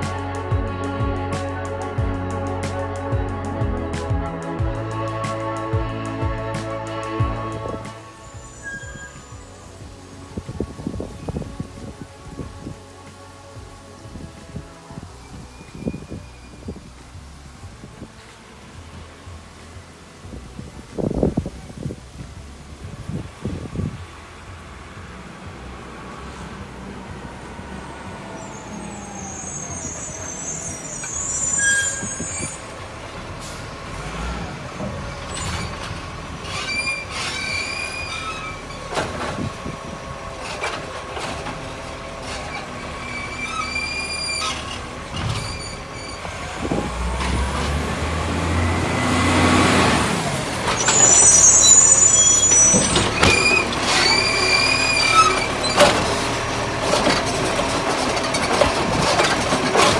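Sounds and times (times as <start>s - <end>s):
garbage truck diesel engine: 0.0s - 59.9s
hydraulic arm lifting bin: 50.5s - 59.9s.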